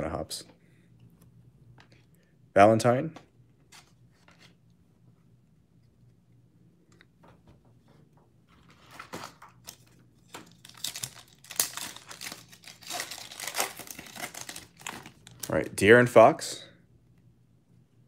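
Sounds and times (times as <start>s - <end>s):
foil wrapper crinkling and tearing: 8.9s - 15.5s.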